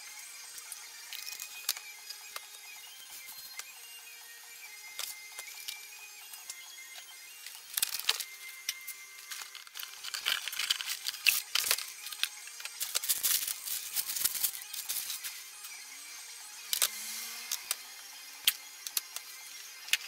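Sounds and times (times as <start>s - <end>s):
faint music: 0.0s - 20.0s
rapid irregular clicking and rattling: 9.2s - 15.3s.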